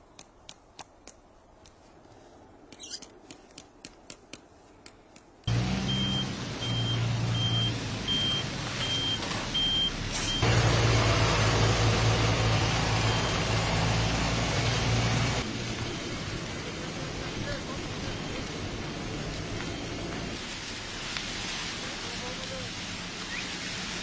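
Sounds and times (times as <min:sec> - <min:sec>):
heavy vehicle engine running: 0:05.5 - 0:20.4
reversing alarm beeping: 0:05.8 - 0:10.5, 0:12.9 - 0:13.6.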